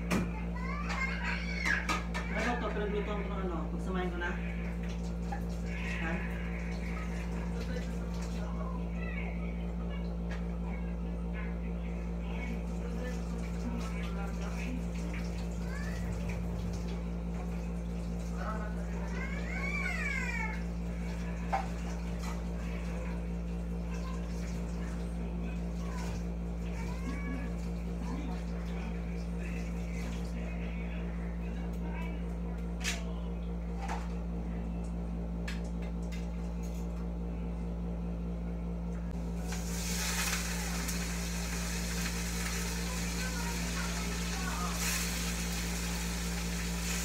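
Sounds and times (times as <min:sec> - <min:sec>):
chicken sizzling in a wok: 0:39.4 - 0:47.0.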